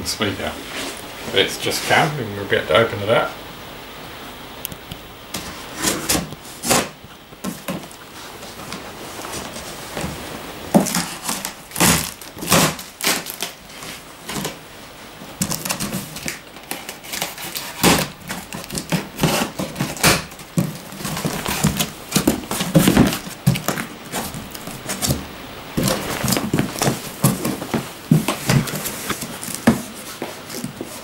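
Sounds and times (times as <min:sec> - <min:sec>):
cardboard box being opened: 0:15.4 - 0:25.2, 0:25.8 - 0:31.0.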